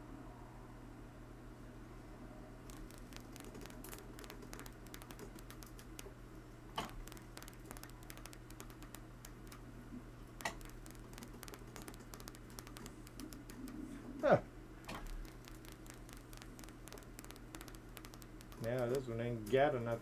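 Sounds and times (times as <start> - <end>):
low steady hum: 0.0 - 20.0
rotary switch rapid clicking: 2.7 - 6.1, 6.8 - 9.6, 10.4 - 13.8, 14.9 - 19.1
sharp clicks: 2.7 - 6.1, 6.8 - 9.7, 10.4 - 13.9, 14.8 - 19.6.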